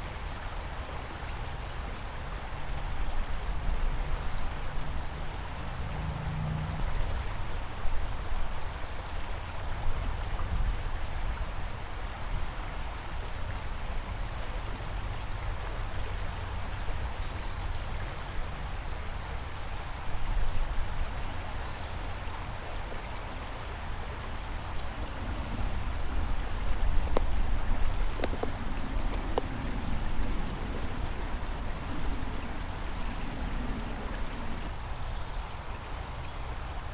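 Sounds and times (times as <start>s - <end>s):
river rushing: 0.0s - 36.9s.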